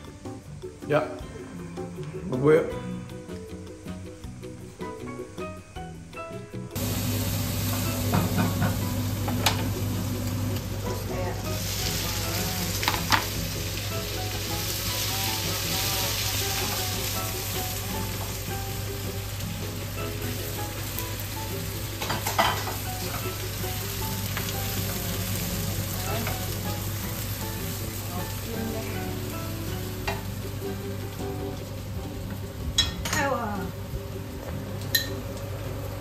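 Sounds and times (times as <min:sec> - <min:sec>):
meat sizzling in a wok: 0:03.0 - 0:36.0
spatula knocking on wok: 0:07.7 - 0:09.8.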